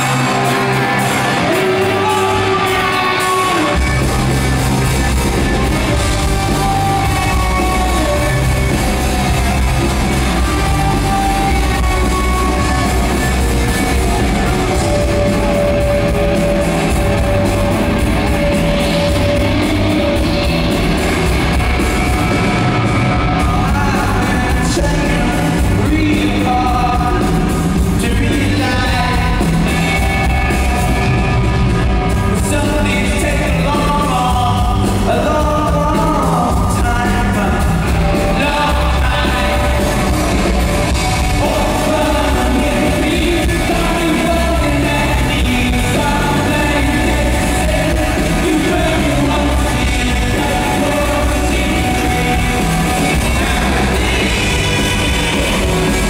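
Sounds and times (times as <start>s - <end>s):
man singing lead vocal: 0.0s - 31.2s, 32.3s - 56.0s
live rock band playing: 0.0s - 56.0s.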